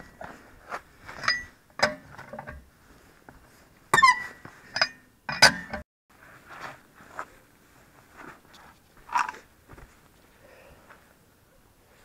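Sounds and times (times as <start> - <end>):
lug wrench clanking on wheel bolts: 1.1 - 2.7, 3.9 - 5.8.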